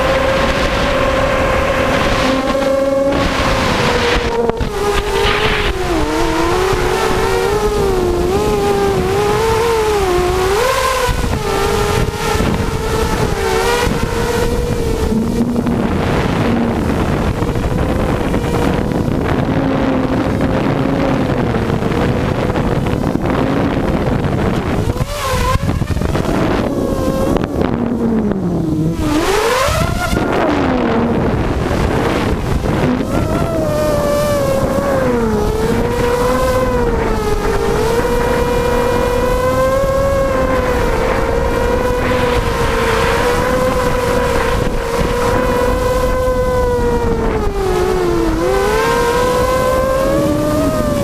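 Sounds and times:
drone motors buzzing whine: 0:00.0 - 0:51.0
wind rush on microphone: 0:00.0 - 0:51.0.

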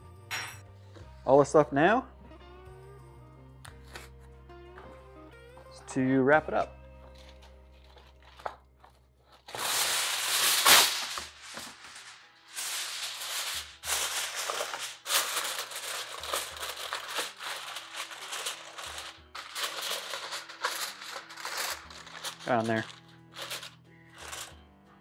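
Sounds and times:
aluminium foil ripping: 0:07.1 - 0:08.6, 0:09.3 - 0:24.6
foil crinkling and rustling: 0:07.1 - 0:24.6.

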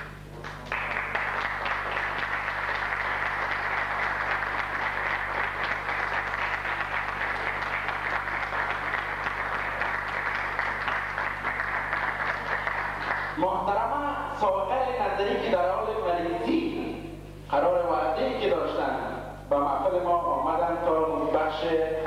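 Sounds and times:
audience applauding: 0:00.0 - 0:13.4
faint low electrical hum: 0:00.0 - 0:22.0.

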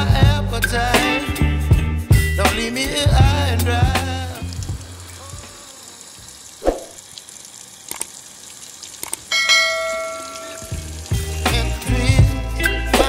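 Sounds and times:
music: 0:00.0 - 0:05.0, 0:10.5 - 0:13.0
water pouring into a basin: 0:04.1 - 0:12.0
short clicks: 0:07.9 - 0:08.1, 0:09.0 - 0:09.3
bell-like ding: 0:09.3 - 0:10.8.

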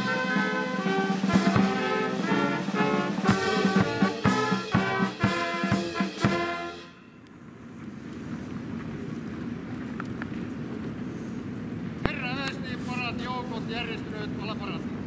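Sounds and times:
military brass band playing: 0:00.0 - 0:07.2
faint outdoor hiss: 0:00.0 - 0:15.0.

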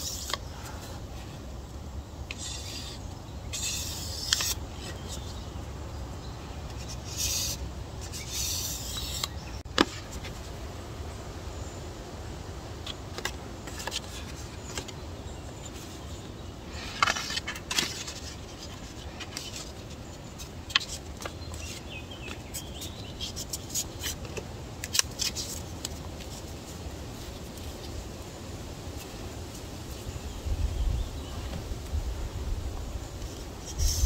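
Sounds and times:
knife scraping on sandpaper: 0:00.0 - 0:01.0, 0:02.3 - 0:05.4, 0:06.7 - 0:09.5, 0:33.3 - 0:34.0.

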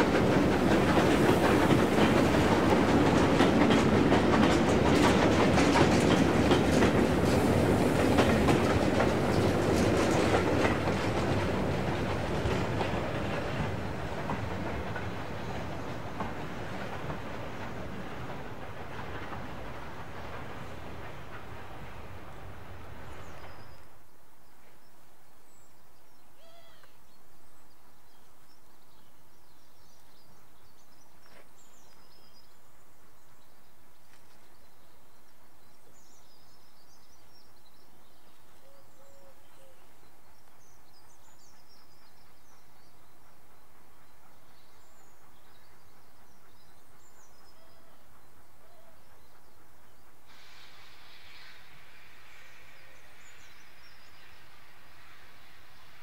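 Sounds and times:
steam hissing from locomotive: 0:00.0 - 0:23.8, 0:39.1 - 0:56.0
train passing: 0:00.0 - 0:26.4, 0:27.3 - 0:56.0
low hoot: 0:26.4 - 0:27.0, 0:38.6 - 0:39.8.

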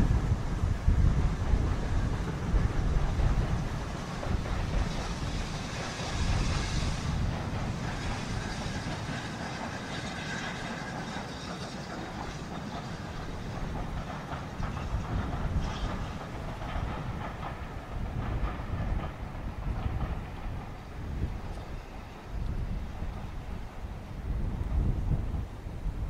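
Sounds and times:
wind rumble on microphone: 0:00.0 - 0:10.6, 0:12.2 - 0:26.0
steam train running: 0:00.0 - 0:26.0.

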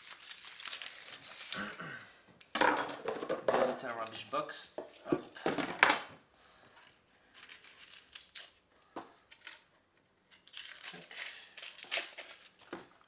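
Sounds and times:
onion skin crackling and tearing: 0:00.0 - 0:01.9, 0:07.2 - 0:08.6, 0:09.2 - 0:13.0.

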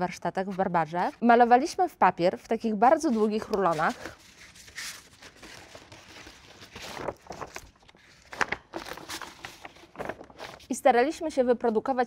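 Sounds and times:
paper crinkle: 0:03.0 - 0:10.8
paper rustling: 0:03.0 - 0:10.8.

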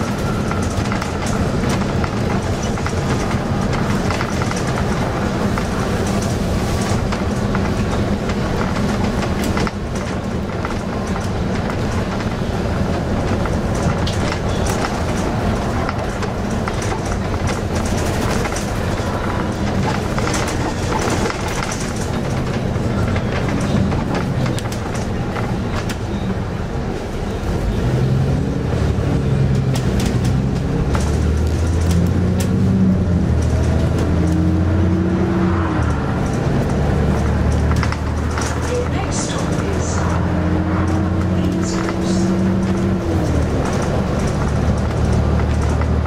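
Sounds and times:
bodywork rattling: 0:00.0 - 0:26.4, 0:29.5 - 0:46.0
bus diesel engine: 0:00.0 - 0:46.0.

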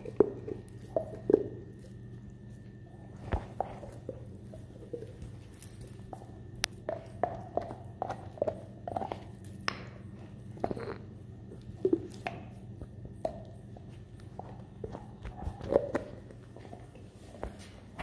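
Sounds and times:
dog gnawing on bone: 0:00.0 - 0:18.0.

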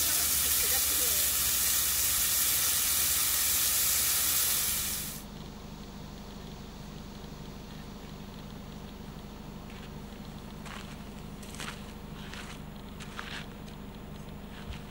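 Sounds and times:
meat sizzling on a grill pan: 0:00.0 - 0:05.2.

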